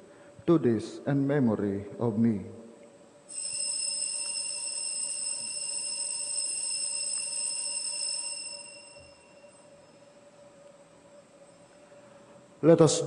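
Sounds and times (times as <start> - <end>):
altar bell ringing: 3.3 - 10.3.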